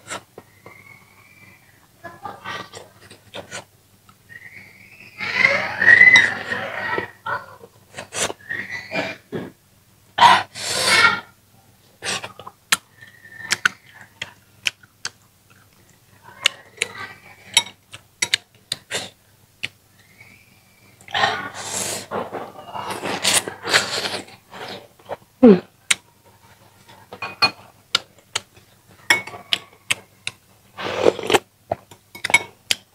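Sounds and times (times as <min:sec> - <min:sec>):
person chewing with lip smacks: 0:13.5 - 0:16.6.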